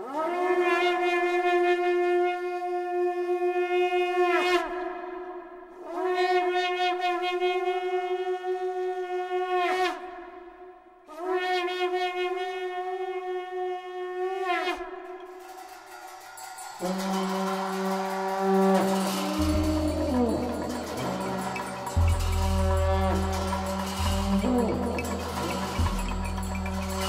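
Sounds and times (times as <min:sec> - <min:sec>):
horn blowing long notes: 0:16.8 - 0:27.0.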